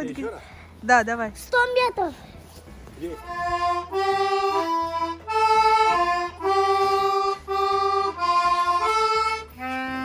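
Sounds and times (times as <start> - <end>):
accordion chords: 2.7 - 10.0.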